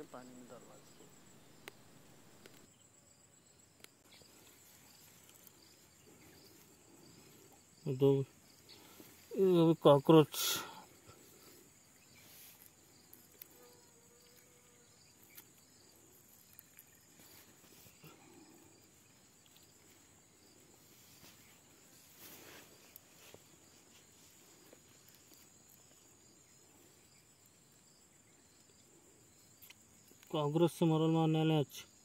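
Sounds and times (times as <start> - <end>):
high insect trill: 0.0 - 32.0
soft rustles: 19.4 - 25.7.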